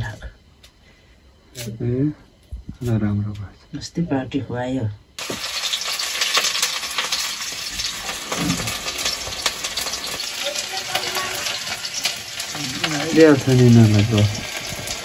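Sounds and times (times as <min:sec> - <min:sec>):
sizzling hiss with crackles: 0:05.2 - 0:15.0.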